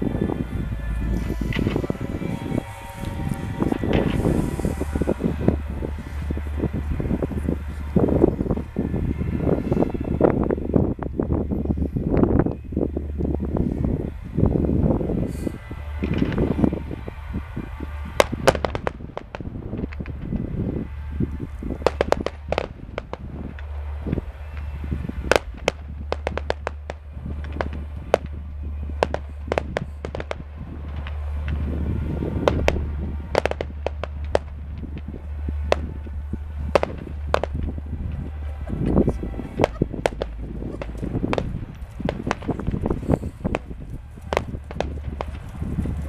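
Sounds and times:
fireworks cracks and bangs: 1.0s - 8.6s, 16.0s - 16.8s, 18.1s - 20.6s, 21.8s - 46.0s
deep firework booms: 21.7s - 46.0s.

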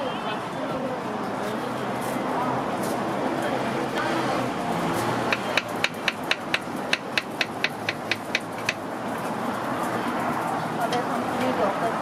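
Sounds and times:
knife tapping cutting board: 5.3s - 8.8s.

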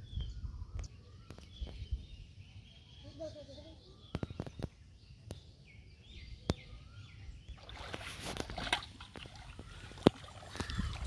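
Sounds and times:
faint bird chirps: 0.0s - 8.4s, 9.2s - 11.0s
feet splashing through water: 7.6s - 11.0s.

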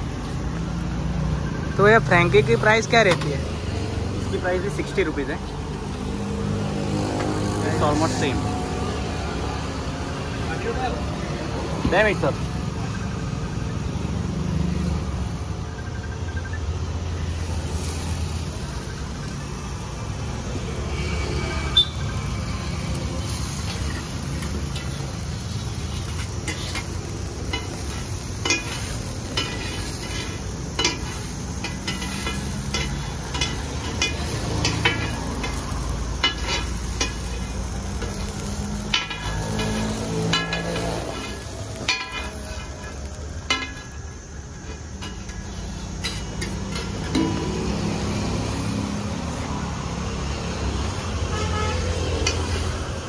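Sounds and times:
food sizzling on griddle: 0.0s - 53.0s
metal spatula clinking and scraping: 23.3s - 44.0s, 45.0s - 47.6s.

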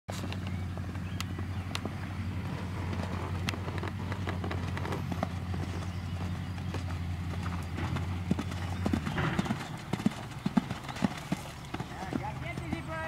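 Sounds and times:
horse hoofbeats on sand: 0.1s - 13.0s
steady low hum: 0.1s - 13.0s.

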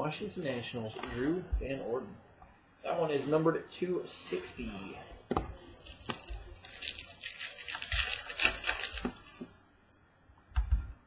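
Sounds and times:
cards clicking and rustling: 5.8s - 9.5s.

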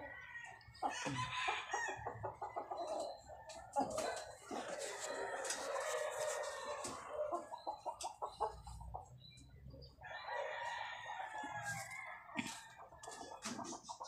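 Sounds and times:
rooster crowing: 3.8s - 7.5s, 10.0s - 13.2s.

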